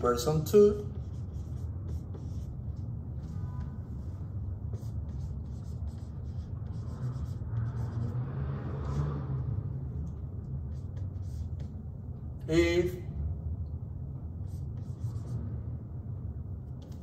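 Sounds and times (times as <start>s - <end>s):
marker writing on whiteboard: 0.0s - 9.2s, 10.1s - 11.9s, 14.4s - 15.5s, 16.7s - 17.0s
low hum: 0.9s - 17.0s.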